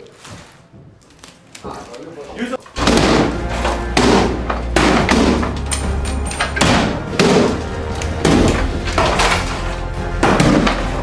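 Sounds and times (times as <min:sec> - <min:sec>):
sledgehammer thuds: 0:02.8 - 0:05.8, 0:06.4 - 0:11.0
background music with bass: 0:02.8 - 0:11.0.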